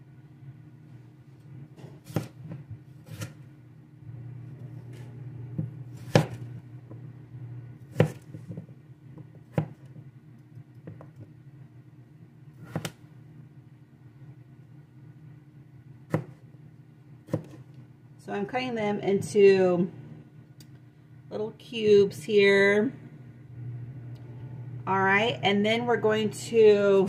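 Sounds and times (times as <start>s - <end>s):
low steady hum: 0.0s - 27.0s
knife cutting potatoes on board: 1.8s - 3.4s, 4.8s - 6.5s, 7.9s - 10.0s, 12.6s - 13.0s, 16.1s - 16.4s, 17.3s - 17.6s.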